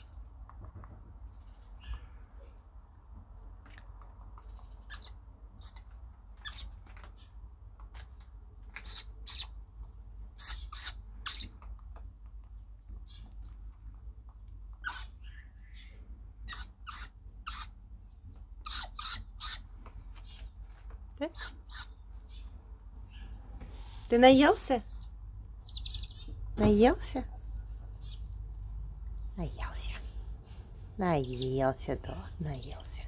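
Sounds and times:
owl chick squawking calls: 4.6s - 6.8s, 8.8s - 9.6s, 10.3s - 11.6s, 14.8s - 18.0s, 18.6s - 20.4s, 21.3s - 22.4s, 24.8s - 26.4s.

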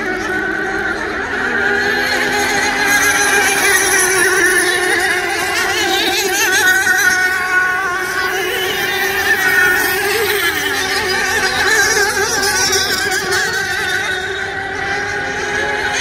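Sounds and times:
racing boat engines whining: 0.0s - 16.0s.

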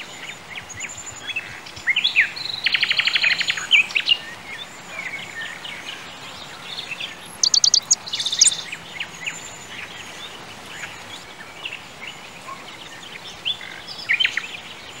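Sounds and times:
small birds chirping: 0.0s - 15.0s
steady background hiss: 0.0s - 15.0s.

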